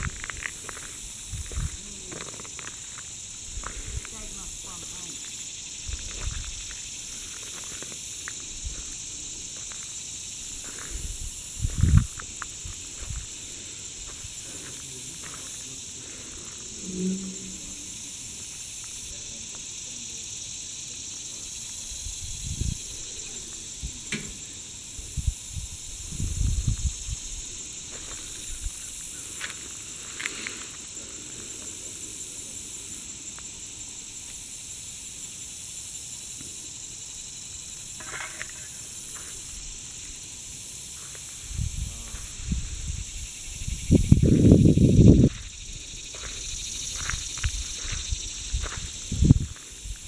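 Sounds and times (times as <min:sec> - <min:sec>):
wind thumps on microphone: 0:00.0 - 0:02.0, 0:05.8 - 0:06.8, 0:10.6 - 0:13.4, 0:22.0 - 0:23.1, 0:23.8 - 0:28.8, 0:41.4 - 0:50.0
high-pitched insect chorus: 0:00.0 - 0:50.0.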